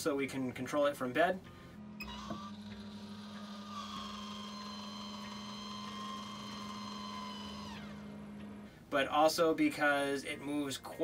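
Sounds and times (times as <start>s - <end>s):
vent fan humming: 0.0s - 11.0s
motor whine: 1.3s - 8.9s.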